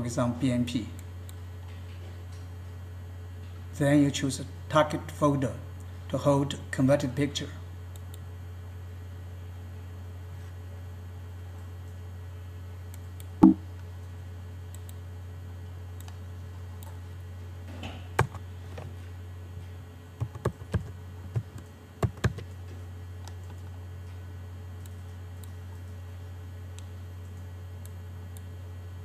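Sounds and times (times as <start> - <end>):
steady low hum: 0.0 - 29.0
computer keyboard typing: 20.2 - 22.5.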